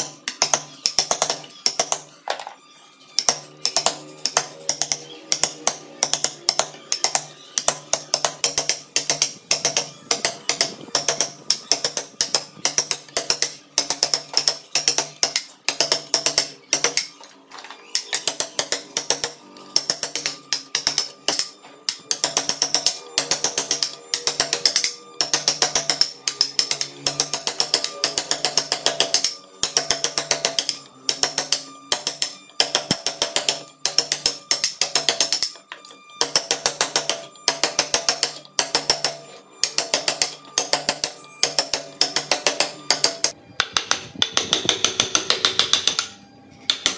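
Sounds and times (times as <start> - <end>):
mallet tapping chisel: 0.0 - 2.6, 3.2 - 17.2, 17.9 - 46.9.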